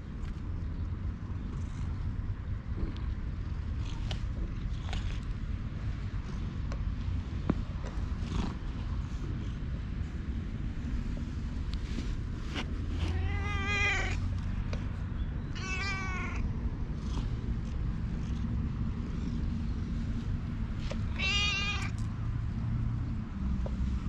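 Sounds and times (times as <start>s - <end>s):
cat meowing: 13.0s - 14.2s, 15.5s - 16.4s, 21.1s - 22.0s.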